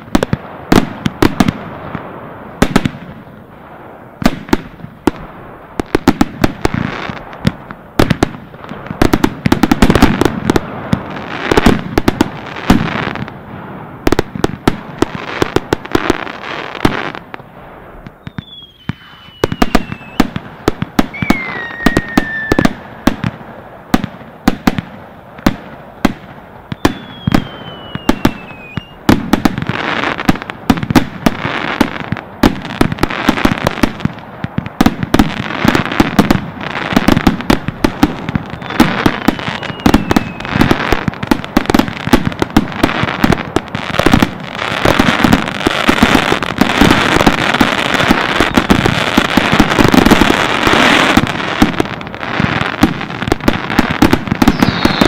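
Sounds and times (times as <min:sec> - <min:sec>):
fireworks bangs and crackling: 0:00.0 - 0:55.0
falling firework whistles: 0:15.2 - 0:20.4, 0:21.0 - 0:23.1, 0:26.7 - 0:30.3, 0:35.1 - 0:41.1, 0:47.9 - 0:51.8, 0:54.0 - 0:55.0.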